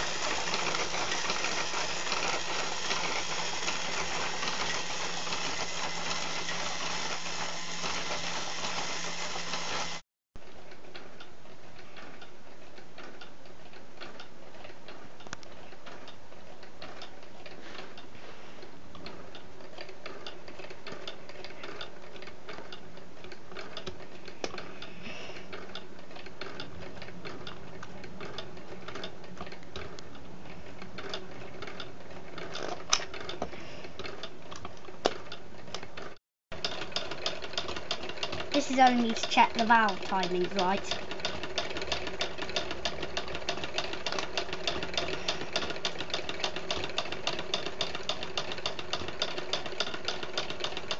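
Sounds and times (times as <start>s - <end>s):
plastic model engine clicking: 30.8s - 50.9s.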